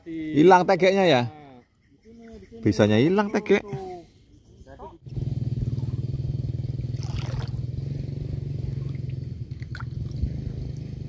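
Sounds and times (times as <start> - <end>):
low motor drone: 4.9 - 11.0.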